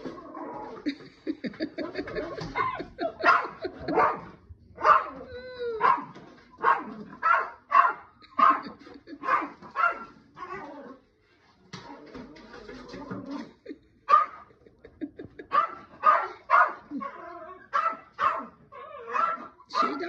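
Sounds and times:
dog whining: 0:04.8 - 0:06.2.

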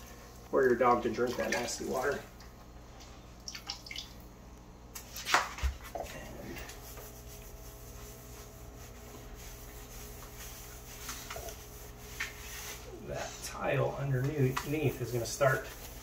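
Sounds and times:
damp sponge rubbing on tiles: 0:06.4 - 0:16.0.

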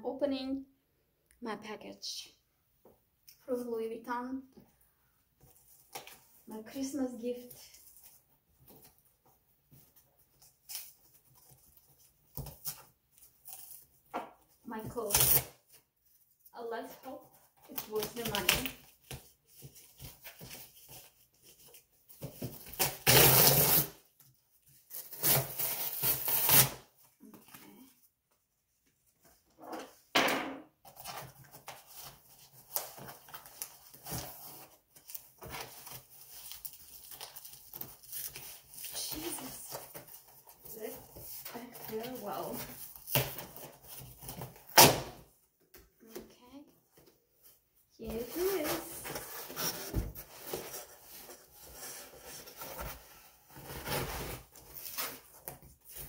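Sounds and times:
cardboard box tearing and scraping: 0:22.4 - 0:24.0, 0:24.9 - 0:26.8, 0:48.3 - 0:56.0.

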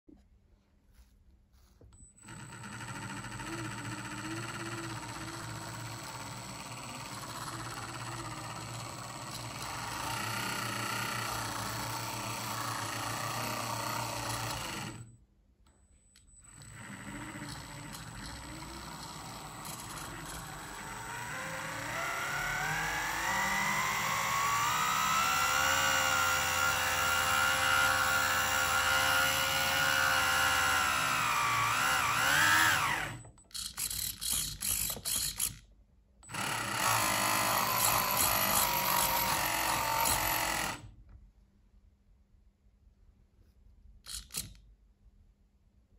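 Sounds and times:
electric motor whine: 0:18.6 - 0:33.2.

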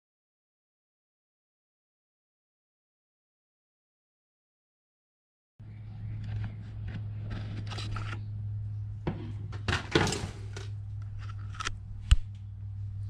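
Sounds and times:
steady low hum: 0:05.6 - 0:13.0.

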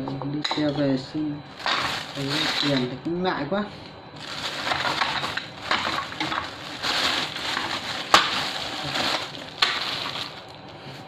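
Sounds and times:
plastic bag crinkling: 0:01.5 - 0:02.9, 0:04.2 - 0:10.8.

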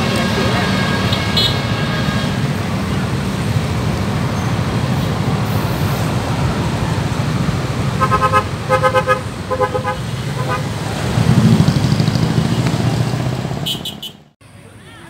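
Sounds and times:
motorcycles and minibus rumbling: 0:00.0 - 0:14.8
vehicle horn blasts: 0:00.2 - 0:02.6, 0:08.0 - 0:10.7, 0:13.6 - 0:14.2.

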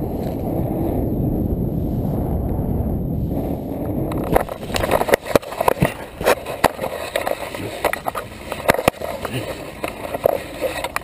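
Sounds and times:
wind rushing over microphone: 0:00.0 - 0:11.0
knocks and scrapes: 0:04.1 - 0:11.0.

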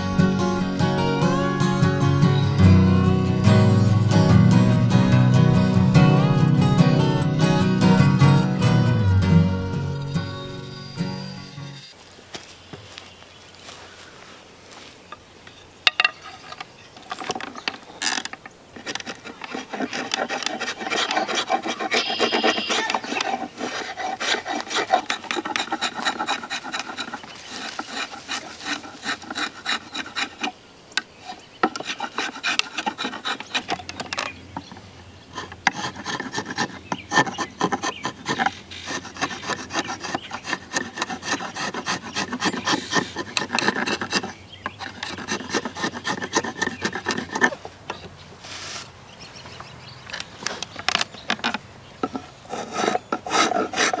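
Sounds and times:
spokeshave scraping wood: 0:15.9 - 0:49.0, 0:50.1 - 0:54.0.

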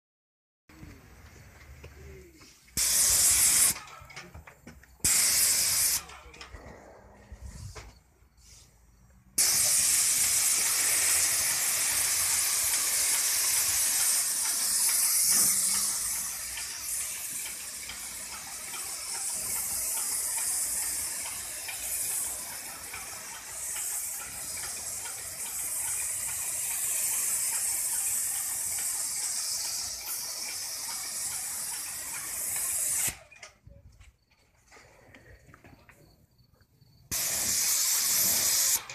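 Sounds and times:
paint sprayer hissing: 0:02.4 - 0:04.0, 0:04.9 - 0:06.2, 0:08.4 - 0:33.3, 0:37.1 - 0:38.9.

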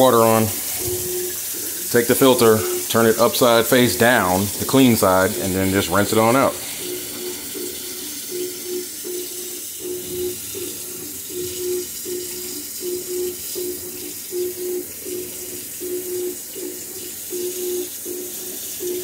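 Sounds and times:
faucet running water: 0:00.0 - 0:19.0
low pulsing hum: 0:00.5 - 0:01.8, 0:06.5 - 0:18.2.

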